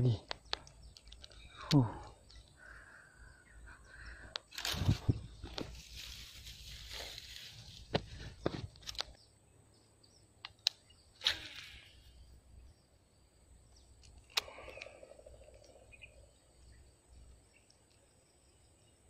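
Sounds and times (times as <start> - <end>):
footsteps through long grass: 4.5 - 8.9.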